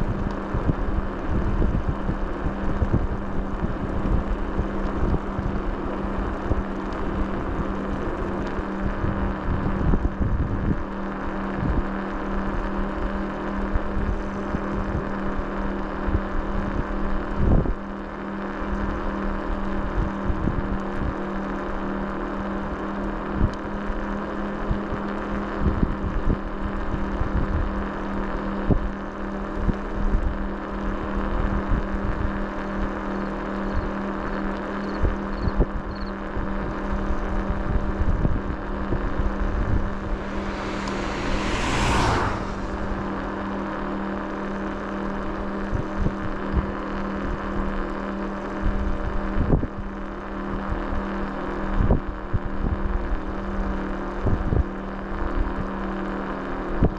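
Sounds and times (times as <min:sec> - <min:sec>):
vehicle engine running: 0:39.4 - 0:45.0
loud whoosh: 0:39.5 - 0:44.6
low thumps and buffeting: 0:39.7 - 0:44.4.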